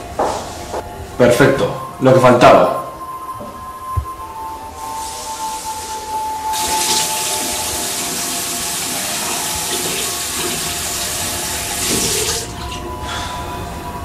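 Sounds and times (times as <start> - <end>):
tap water pouring into sink: 6.6 - 12.8.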